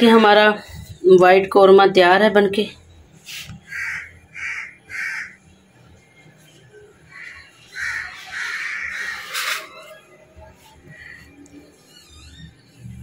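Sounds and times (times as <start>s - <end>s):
crows cawing: 3.6s - 5.4s, 7.1s - 9.5s, 10.9s - 11.4s.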